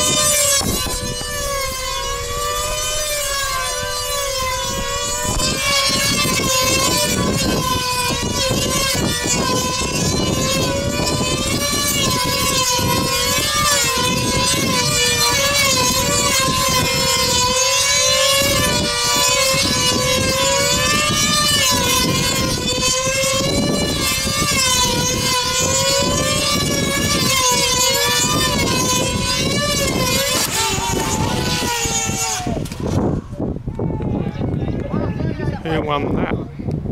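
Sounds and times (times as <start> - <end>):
model plane engines whining: 0.0 - 36.3.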